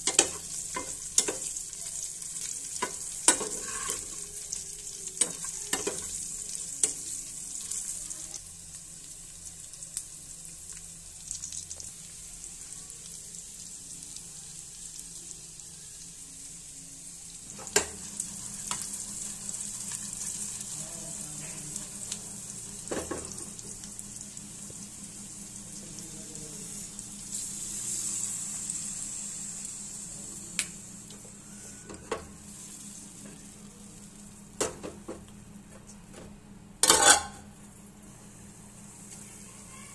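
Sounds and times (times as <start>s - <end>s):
meat sizzling in oil: 0.0s - 34.6s
low steady hum: 0.0s - 39.9s
metal spatula scraping a wok: 3.4s - 4.1s, 36.8s - 37.4s.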